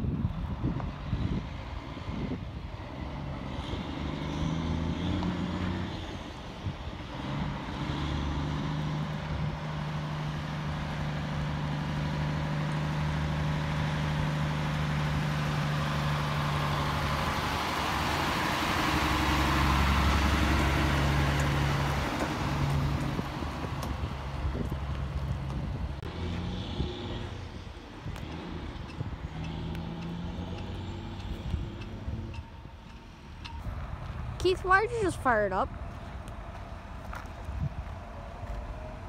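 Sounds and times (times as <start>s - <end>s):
truck engine drone: 0.0s - 39.0s
tyre and road noise: 0.0s - 39.0s.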